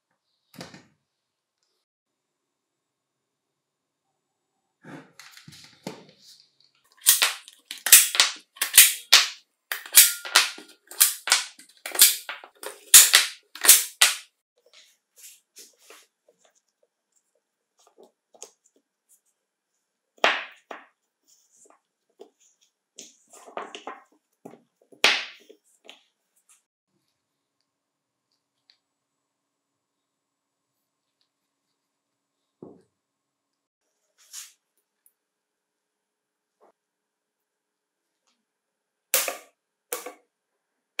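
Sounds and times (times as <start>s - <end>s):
spot welder cracks: 7.0s - 14.3s.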